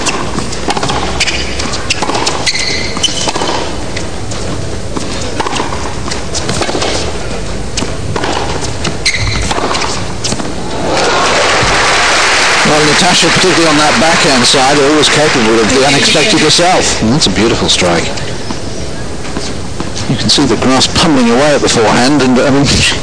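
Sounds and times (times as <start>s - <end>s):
shoe squeaks: 0.0s - 10.6s
racket hitting tennis ball: 0.0s - 10.8s
tennis ball bouncing: 0.0s - 10.8s
crowd hum: 3.4s - 23.0s.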